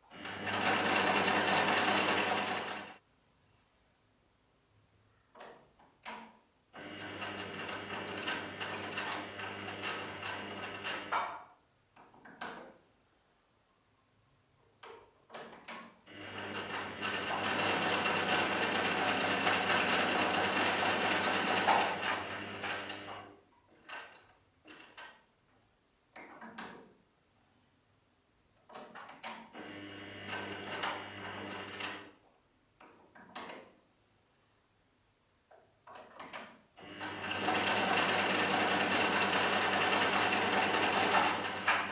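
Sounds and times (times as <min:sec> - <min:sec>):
sewing machine stitching: 0:00.0 - 0:03.0, 0:06.8 - 0:11.5, 0:15.4 - 0:25.2, 0:28.7 - 0:32.2, 0:35.9 - 0:41.9
sewing machine clicks and knocks: 0:07.0 - 0:12.8, 0:14.8 - 0:25.3, 0:26.1 - 0:27.0, 0:28.6 - 0:29.7, 0:32.8 - 0:33.8, 0:35.5 - 0:41.9.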